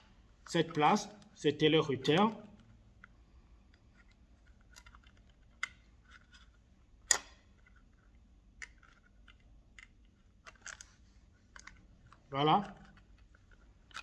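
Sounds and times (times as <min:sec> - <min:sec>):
clicks and taps of wiring work: 0:02.0 - 0:10.9.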